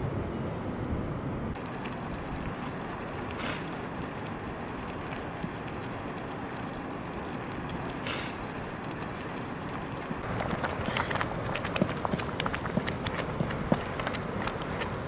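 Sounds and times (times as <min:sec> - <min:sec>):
wood fire rushing and crackling: 0:01.5 - 0:15.0
short hiss: 0:03.4 - 0:03.8, 0:08.0 - 0:08.4.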